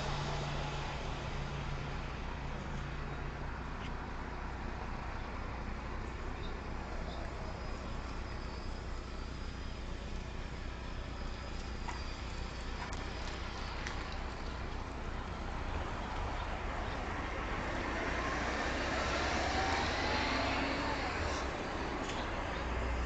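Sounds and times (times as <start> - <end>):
car passing by: 15.6 - 23.0.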